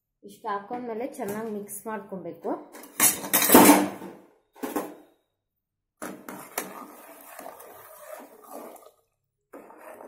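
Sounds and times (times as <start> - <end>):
ladle stirring and scraping pot: 6.0 - 10.0.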